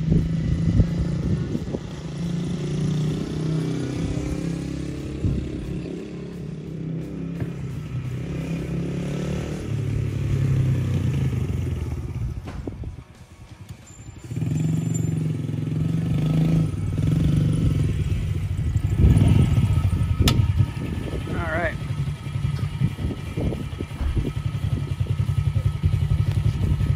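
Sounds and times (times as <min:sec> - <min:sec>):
dirt bike engine running: 0:13.7 - 0:26.9
sharp click: 0:20.2 - 0:20.5.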